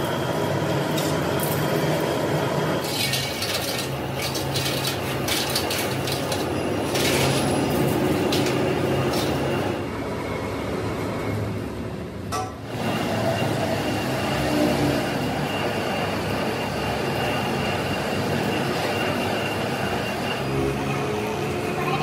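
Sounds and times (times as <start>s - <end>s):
workshop machine humming: 0.0s - 22.0s
metal pieces clinking: 2.8s - 9.5s.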